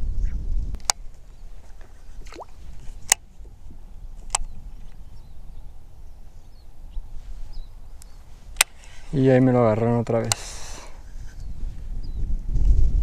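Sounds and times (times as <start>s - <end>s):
sharp clicks: 4.2s - 4.6s.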